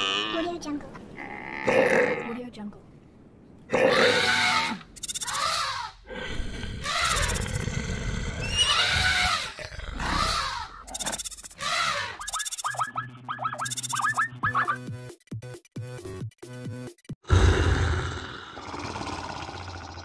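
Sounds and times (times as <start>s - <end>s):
horse whinnies: 8.4s - 10.8s
short rising chirps: 12.2s - 14.8s.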